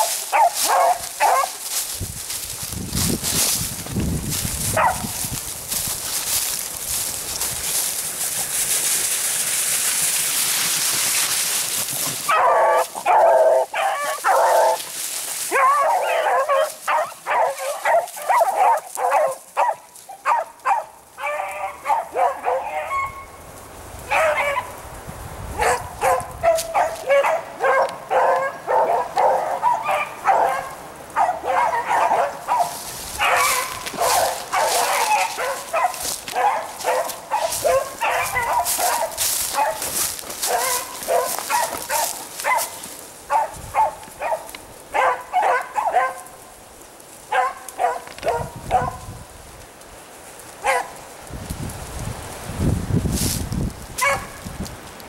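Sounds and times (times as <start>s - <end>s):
beagles baying in chorus: 0.0s - 1.7s, 12.3s - 23.4s, 25.6s - 46.3s.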